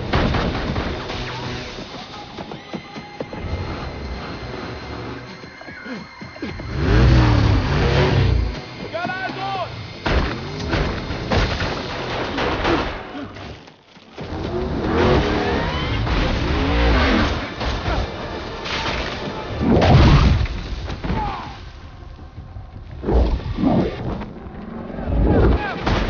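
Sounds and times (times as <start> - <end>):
dramatic film score: 0.0 - 13.6
heavy impact effects: 6.6 - 13.1
crashes: 14.2 - 26.0.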